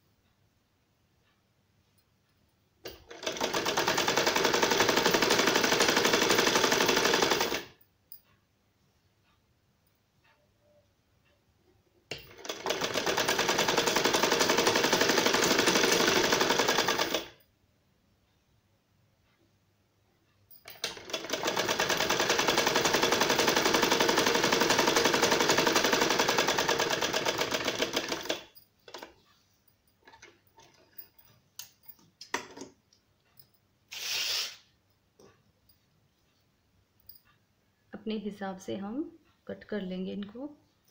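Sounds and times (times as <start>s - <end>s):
sewing machine stitching: 2.8s - 7.7s, 12.1s - 17.4s, 20.6s - 29.2s.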